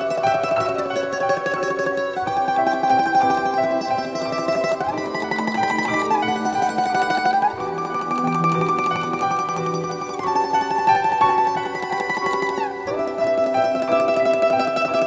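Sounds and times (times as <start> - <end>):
plucked string music: 0.0 - 15.0.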